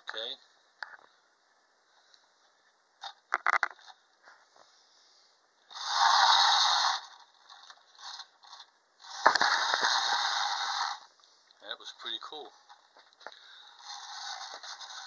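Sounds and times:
clockwork toy motor whirring: 0:05.7 - 0:11.1, 0:13.7 - 0:15.0.

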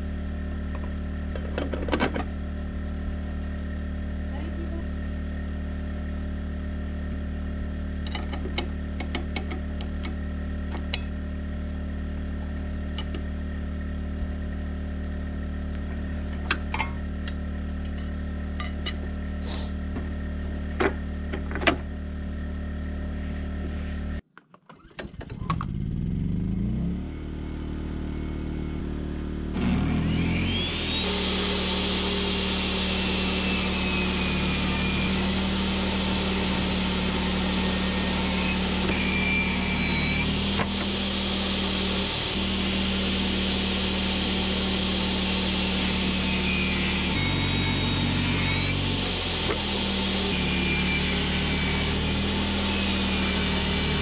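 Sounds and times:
engine running steadily: 0:00.0 - 0:24.2, 0:25.0 - 0:54.0
wrench clinking on metal: 0:08.0 - 0:09.6, 0:16.4 - 0:19.1
table saw motor whining: 0:29.5 - 0:54.0.

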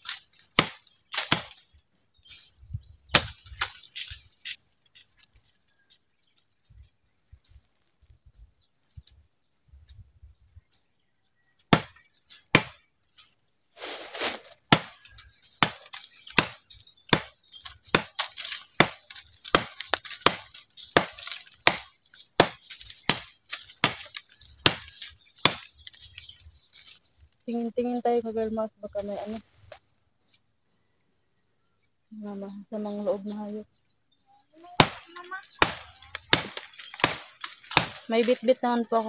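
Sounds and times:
machete chopping wood: 0:00.0 - 0:01.6, 0:03.1 - 0:03.8, 0:11.7 - 0:12.8, 0:14.7 - 0:25.7, 0:34.8 - 0:38.1.

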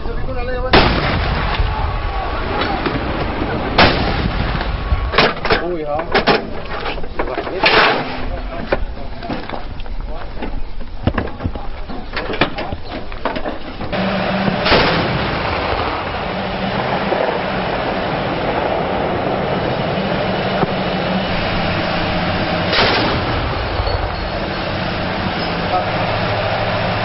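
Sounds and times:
heavy rumble with low hum: 0:00.0 - 0:27.0
gunshots: 0:00.7 - 0:05.4, 0:14.5 - 0:16.0, 0:22.5 - 0:23.6
loud blast: 0:00.7 - 0:05.4, 0:13.9 - 0:27.0.

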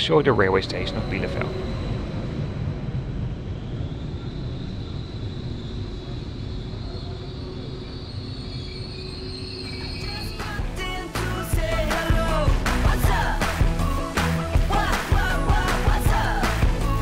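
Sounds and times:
electric train rolling slowly: 0:00.0 - 0:12.5.

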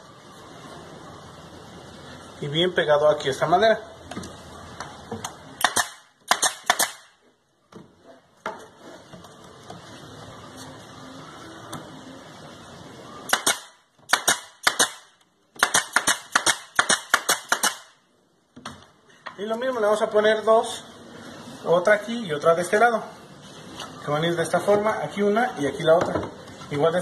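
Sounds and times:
nail gun firing into wood: 0:05.6 - 0:07.1, 0:13.3 - 0:18.0.

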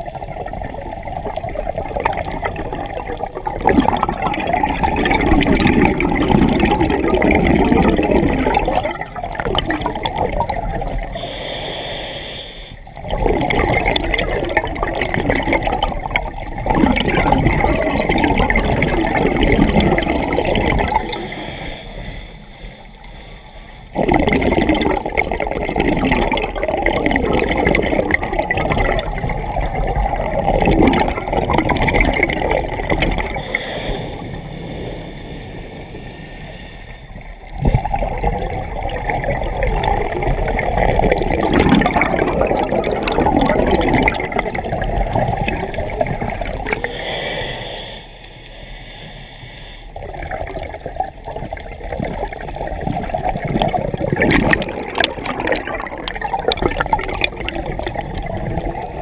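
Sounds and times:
exhaled bubbles rushing: 0:00.0 - 0:11.4, 0:12.8 - 0:21.4, 0:23.9 - 0:47.6, 0:49.9 - 0:59.0
diver inhaling through regulator: 0:11.1 - 0:12.9, 0:20.8 - 0:24.2, 0:33.3 - 0:37.8, 0:46.6 - 0:50.0
demand valve hiss: 0:11.2 - 0:12.8.

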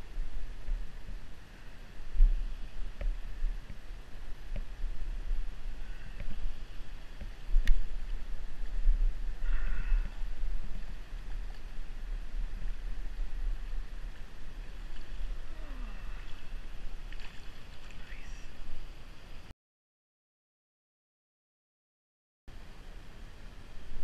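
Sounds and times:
wind buffeting microphone: 0:00.0 - 0:19.0
shallow stream hissing: 0:00.0 - 0:19.5.

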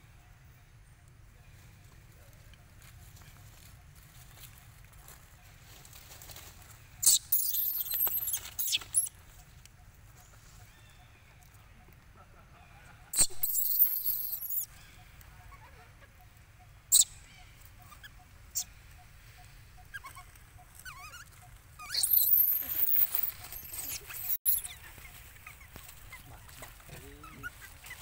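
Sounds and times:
soft chirps: 0:07.0 - 0:09.6, 0:13.2 - 0:15.7, 0:16.9 - 0:26.4
baby monkey screaming: 0:19.9 - 0:24.8.

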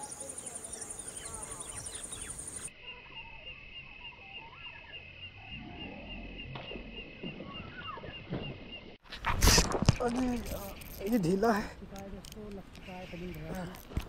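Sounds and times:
birds calling: 0:00.0 - 0:09.4, 0:12.5 - 0:13.9
insects chirping: 0:00.0 - 0:14.0.

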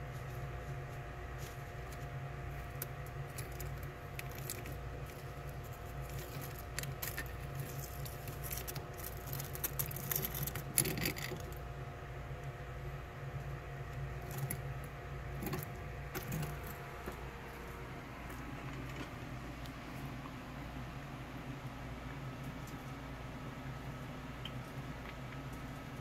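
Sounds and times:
crab clicking over leaves and shells: 0:00.0 - 0:11.7, 0:13.3 - 0:19.8
steady low hum: 0:00.0 - 0:26.0.

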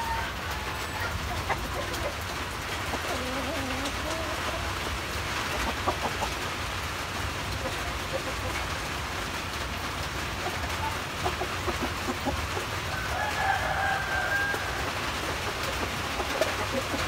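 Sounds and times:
rooster crowing: 0:00.0 - 0:01.3, 0:12.9 - 0:15.4.

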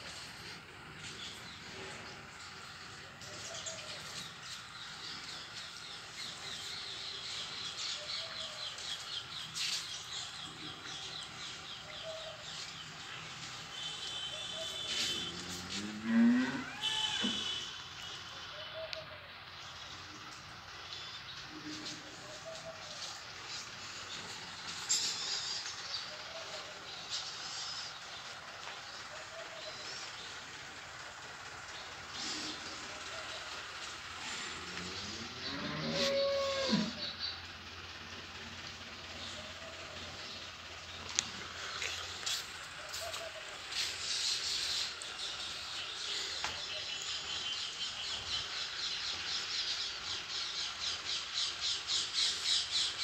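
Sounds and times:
birds chirping: 0:00.0 - 0:53.0
outdoor background noise: 0:00.0 - 0:53.0.

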